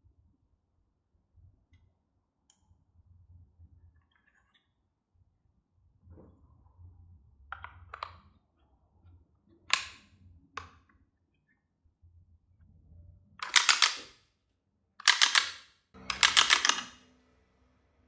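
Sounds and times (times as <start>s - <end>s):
rubber-band gun clacking: 13.4s - 14.1s, 15.0s - 16.9s.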